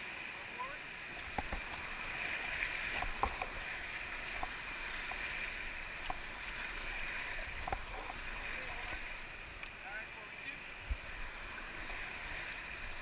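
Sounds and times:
whitewater rushing: 0.0s - 13.0s.

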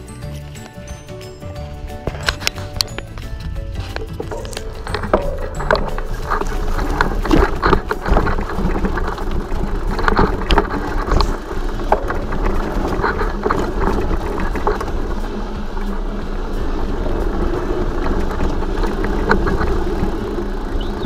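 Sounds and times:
bike rattling over bumps: 0.0s - 21.0s
bike tyres crunching on dirt: 0.0s - 21.0s
wind noise on microphone: 1.8s - 21.0s.

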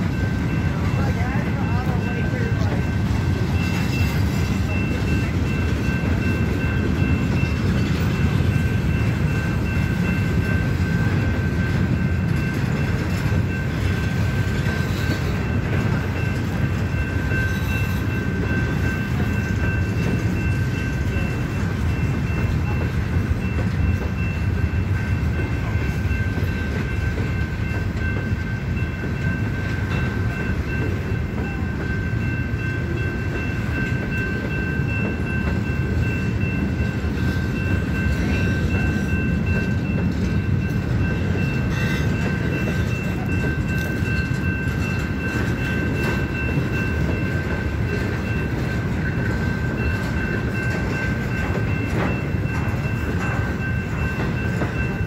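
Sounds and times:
freight train rumbling on rails: 0.0s - 55.0s
high-pitched ringing tone: 0.0s - 55.0s.

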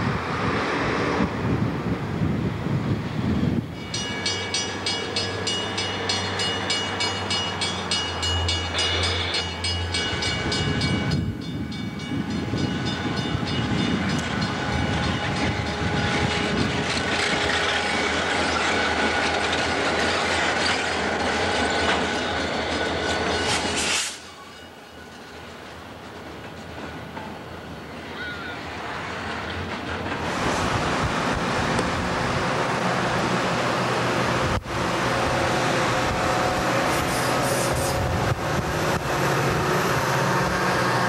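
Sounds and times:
freight train rumbling past: 0.0s - 41.0s
wheels clacking over rail joints: 3.8s - 28.0s, 28.7s - 41.0s
train horn: 34.8s - 41.0s.

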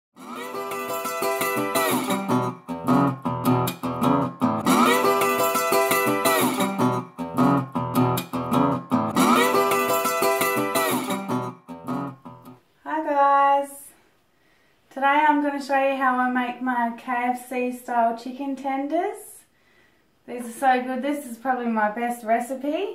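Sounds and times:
guitar picking and strumming: 0.2s - 12.6s.

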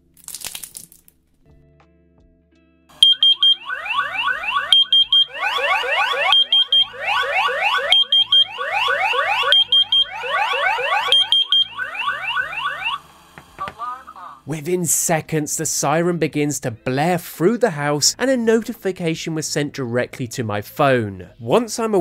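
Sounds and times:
alarm siren whooping: 2.9s - 13.3s
high beeps: 3.0s - 12.8s.

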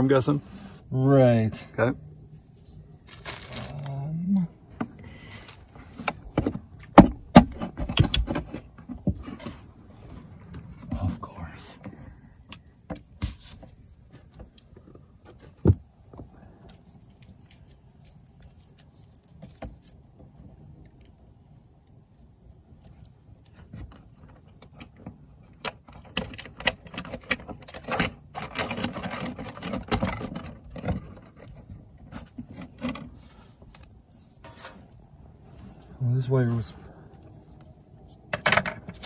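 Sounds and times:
rustling: 2.3s - 4.1s.

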